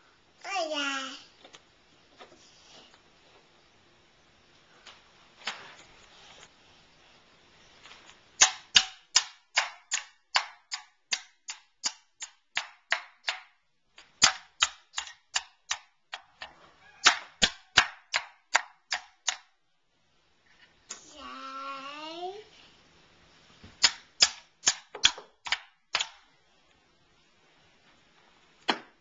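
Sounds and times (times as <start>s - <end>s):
wooden mallet knocking pegs: 8.4s - 19.5s, 23.8s - 26.3s, 28.6s - 29.0s.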